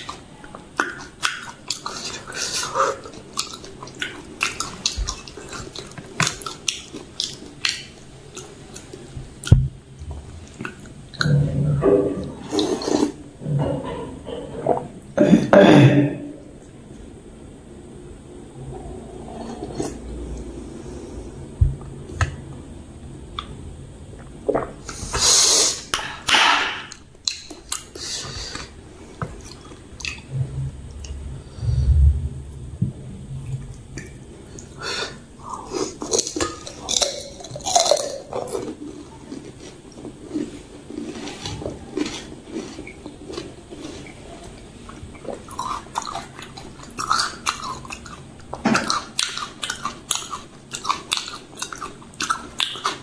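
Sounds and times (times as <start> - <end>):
wet chewing: 0.0 - 9.6, 35.4 - 53.0.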